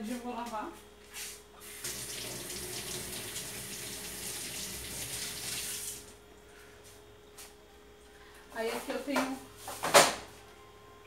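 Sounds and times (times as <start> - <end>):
water running from tap: 1.8 - 6.1.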